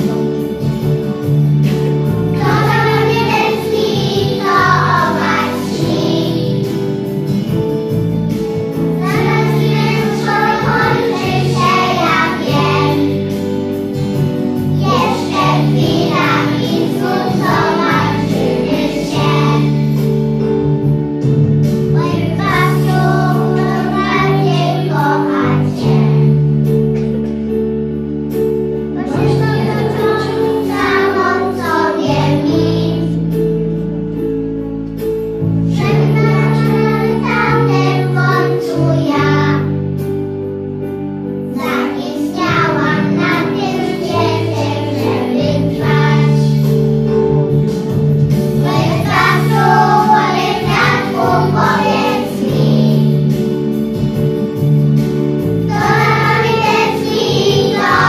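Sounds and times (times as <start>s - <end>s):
instrumental accompaniment: 0.0s - 58.0s
young children singing: 2.0s - 7.5s, 9.0s - 20.2s, 21.9s - 26.5s, 29.0s - 33.4s, 35.7s - 40.0s, 41.5s - 46.9s, 48.5s - 53.8s, 55.4s - 58.0s.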